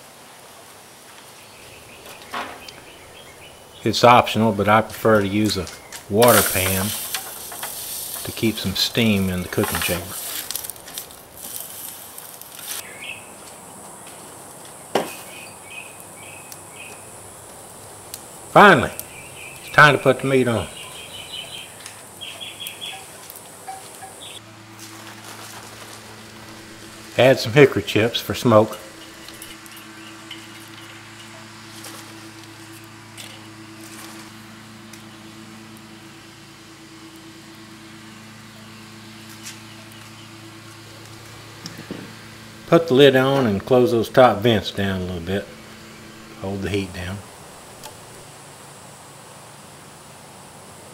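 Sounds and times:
water hissing on hot charcoal: 0.0 - 13.2, 14.4 - 38.0
low machine hum: 1.4 - 50.9
steady high drone: 1.5 - 50.9.

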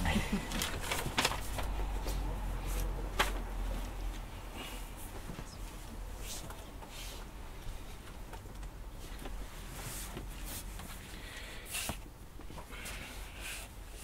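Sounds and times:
book pages rustling: 0.5 - 4.0.

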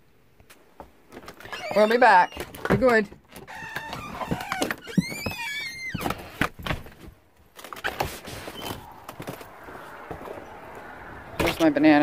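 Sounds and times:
door hinge squeak: 1.4 - 2.6, 3.4 - 6.4.

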